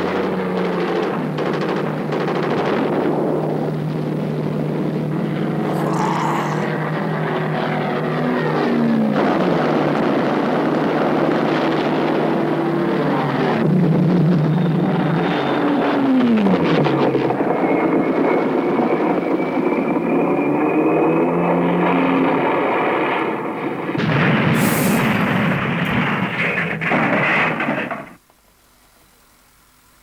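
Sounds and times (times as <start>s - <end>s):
harsh burst of noise: 24.1s - 25.6s.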